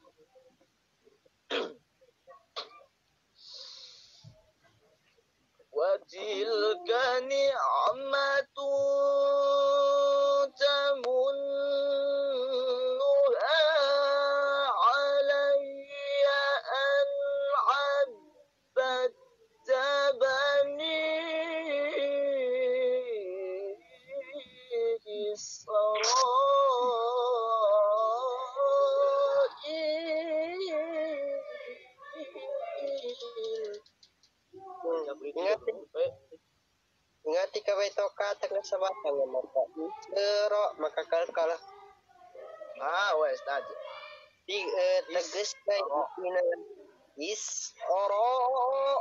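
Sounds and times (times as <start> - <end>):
person singing long held notes: 6.1 - 33.9.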